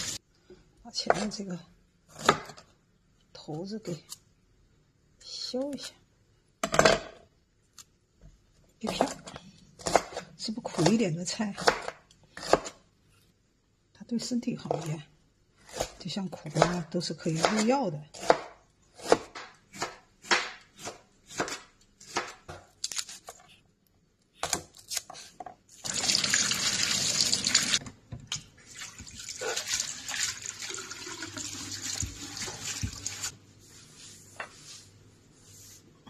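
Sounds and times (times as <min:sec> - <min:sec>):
knife chopping on cutting board: 0:11.6 - 0:12.8, 0:15.7 - 0:22.6.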